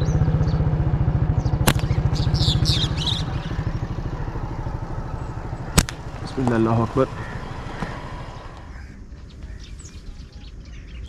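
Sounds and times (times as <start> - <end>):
engine idling: 0.0 - 11.0
high bird chirps: 1.4 - 11.0
sharp snaps: 1.6 - 2.2, 5.6 - 6.6.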